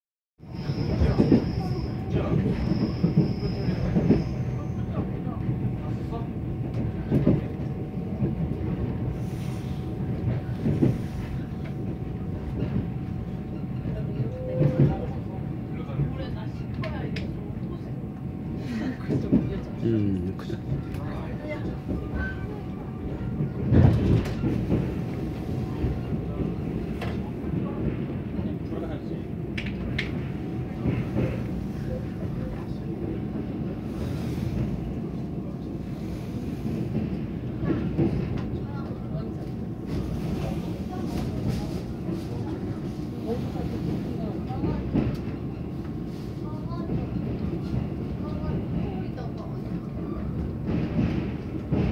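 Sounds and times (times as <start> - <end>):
train wheels rumbling on rails: 0.4 - 51.9
train knocks: 20.7 - 35.0, 46.7 - 51.9.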